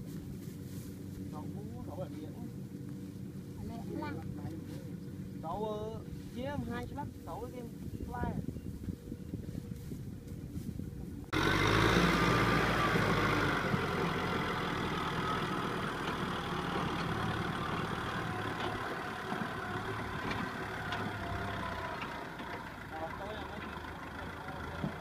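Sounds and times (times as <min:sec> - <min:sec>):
tractor diesel engine running: 0:11.2 - 0:25.0.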